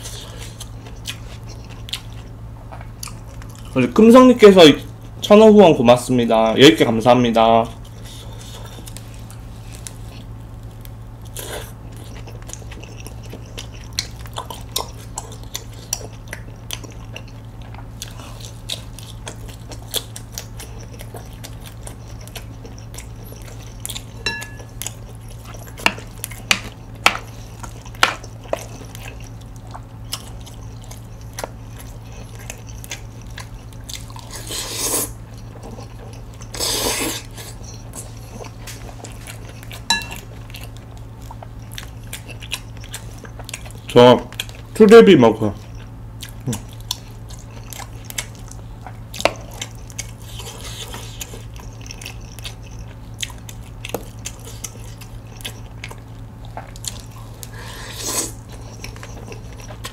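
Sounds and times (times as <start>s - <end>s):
person chewing crispy food: 0.0s - 5.3s, 7.4s - 59.9s
slurping: 30.1s - 39.9s, 56.7s - 59.9s.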